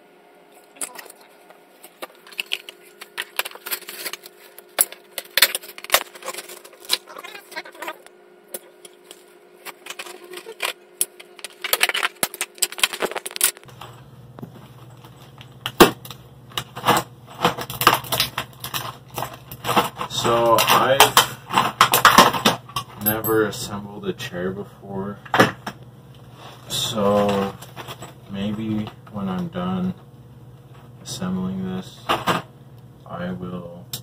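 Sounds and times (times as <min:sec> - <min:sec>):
faint steady hum: 0:00.0 - 0:34.0
plastic packaging crinkling: 0:00.6 - 0:08.0, 0:08.8 - 0:13.9.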